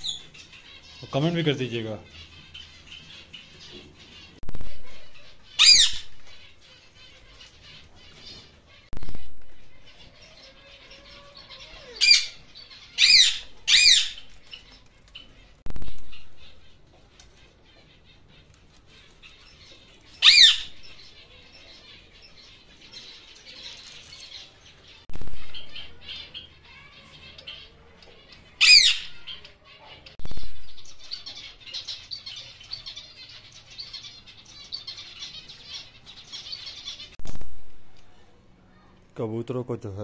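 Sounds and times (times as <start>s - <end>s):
finches chirping: 0.0s - 39.0s
parakeet screeching: 4.7s - 6.3s, 9.0s - 14.3s, 20.2s - 20.8s, 28.6s - 29.6s.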